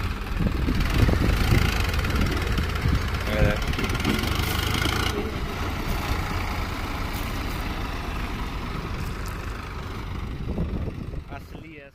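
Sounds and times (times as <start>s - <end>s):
tractor diesel engine rumbling: 0.0s - 11.9s.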